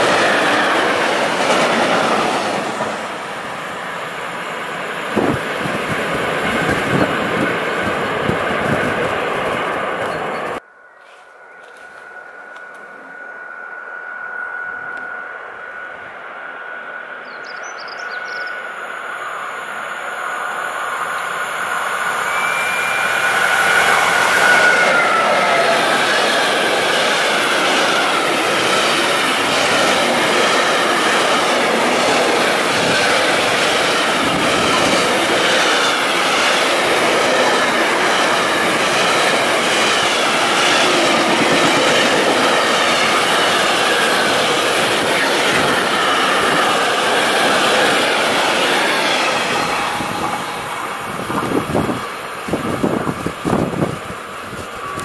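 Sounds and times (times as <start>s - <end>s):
wheels clacking on rails: 0.0s - 10.6s, 22.9s - 55.0s
freight train passing: 0.0s - 55.0s.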